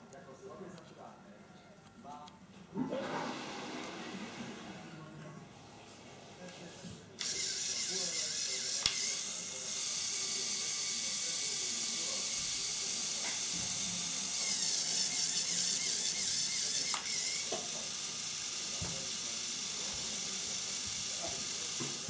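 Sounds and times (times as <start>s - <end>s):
small electric motor whirring: 7.2s - 22.0s.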